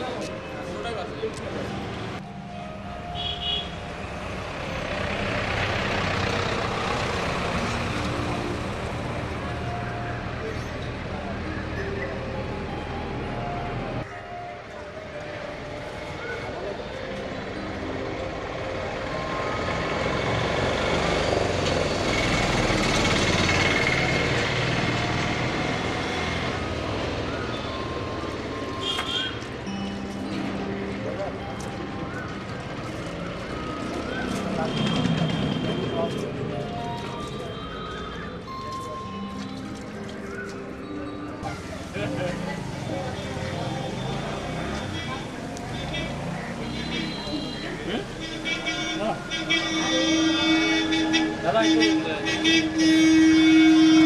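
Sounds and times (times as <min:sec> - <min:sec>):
traffic noise: 0:00.0 - 0:54.0
vehicle passing: 0:03.8 - 0:10.3, 0:30.3 - 0:40.8, 0:41.4 - 0:54.0.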